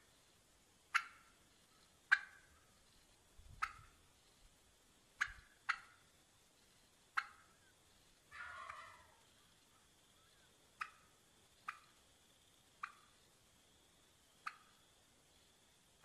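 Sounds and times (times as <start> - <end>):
turkey clucking: 0.9 - 2.6, 3.5 - 4.0, 5.2 - 6.1, 7.1 - 12.0, 12.8 - 13.2, 14.4 - 14.8.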